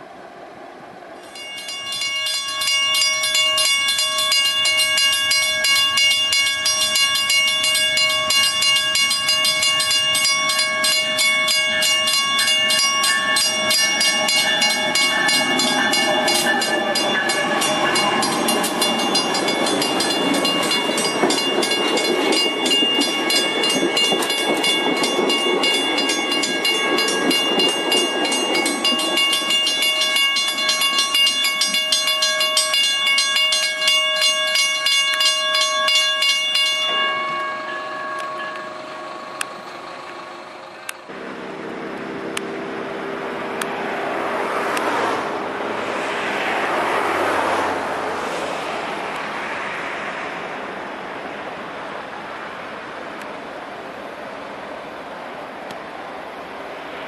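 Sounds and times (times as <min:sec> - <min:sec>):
train rumbling past: 0:00.0 - 0:57.0
level-crossing bell ringing: 0:01.2 - 0:41.2.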